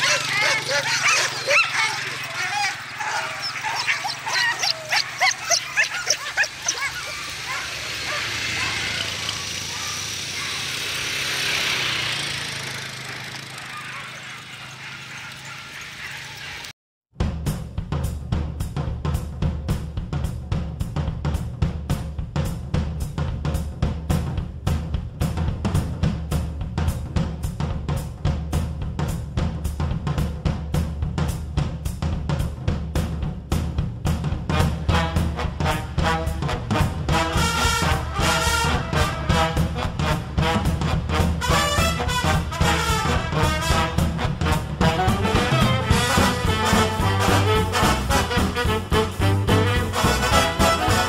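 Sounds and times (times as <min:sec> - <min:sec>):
paws and tyres on grass: 0:00.0 - 0:10.8, 0:13.0 - 0:16.7
atv engine low hum: 0:00.0 - 0:16.7, 0:32.2 - 0:51.0
drum kit steady beat: 0:17.1 - 0:51.0
bass line: 0:17.2 - 0:51.0.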